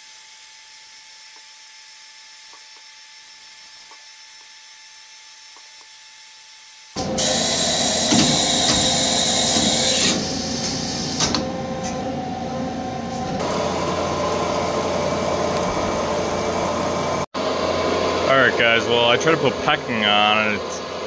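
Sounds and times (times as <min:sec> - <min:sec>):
machine spindle whine: 0:07.0 - 0:21.0.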